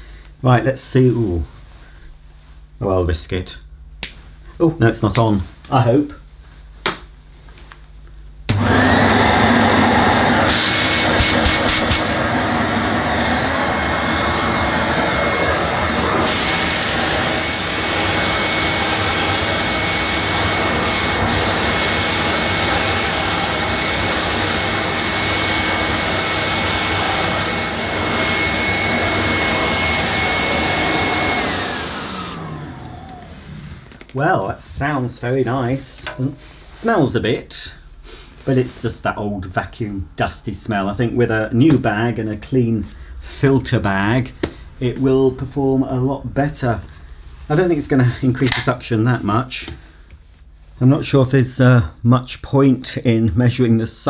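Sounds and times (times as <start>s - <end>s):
vacuum motor winding down: 8.5s - 34.1s
vacuum cleaner running: 8.5s - 34.3s.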